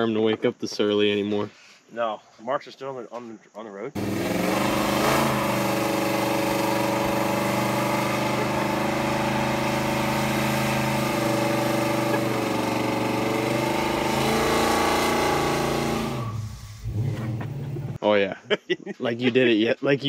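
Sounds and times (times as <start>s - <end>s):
car engine at high revs: 4.0s - 18.0s
tyres spinning on road: 4.0s - 18.0s.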